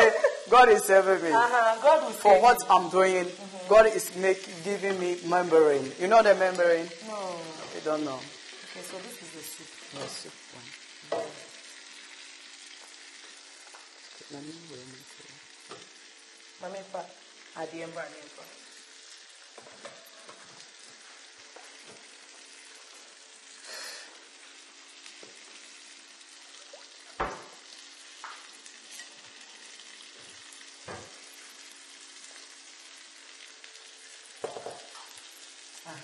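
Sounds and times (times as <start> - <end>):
food sizzling in a pan: 0.0 - 36.0.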